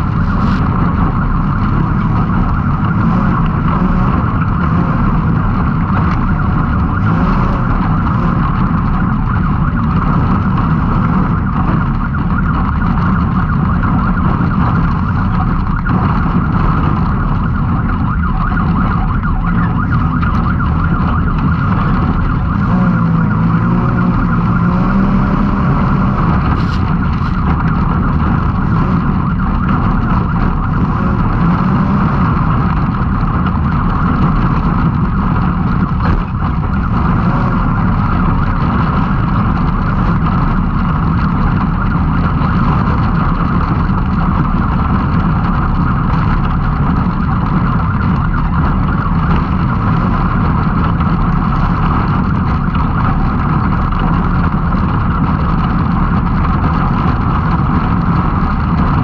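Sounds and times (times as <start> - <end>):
engine running hard: 0.0 - 59.0
vehicle rolling over rough ground: 0.0 - 59.0.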